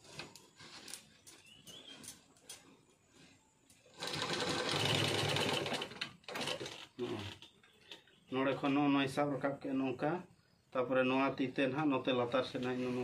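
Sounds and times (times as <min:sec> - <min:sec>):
sewing machine stitching fast: 0:03.9 - 0:07.0.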